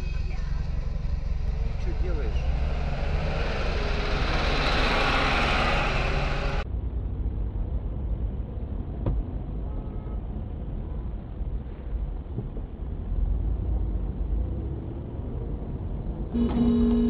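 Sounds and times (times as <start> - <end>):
car road and engine noise: 0.0 - 17.0.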